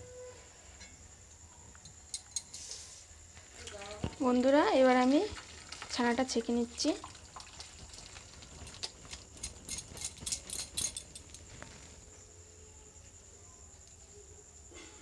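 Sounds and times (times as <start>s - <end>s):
liquid splashing into steel bowl: 5.1s - 9.0s.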